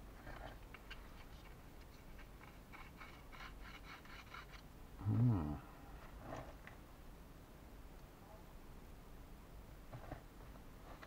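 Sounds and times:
man humming: 0:05.0 - 0:05.8.

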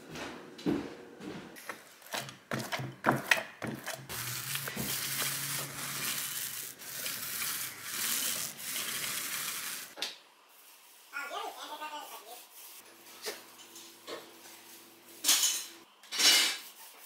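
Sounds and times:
paint roller hissing on wall: 0:04.1 - 0:13.5.

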